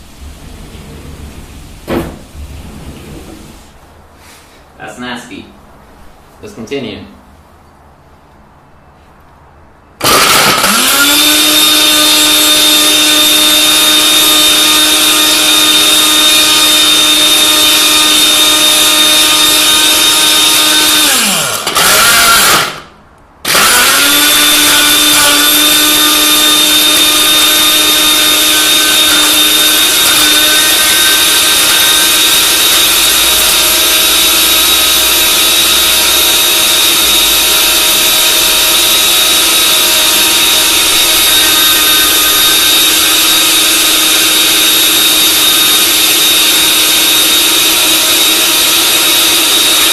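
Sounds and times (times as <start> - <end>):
blender motor whining: 10.0 - 49.9.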